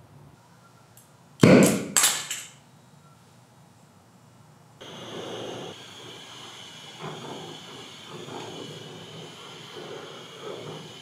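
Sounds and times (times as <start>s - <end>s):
gas hissing: 4.8s - 11.0s
torch gas igniting pops: 4.8s - 11.0s.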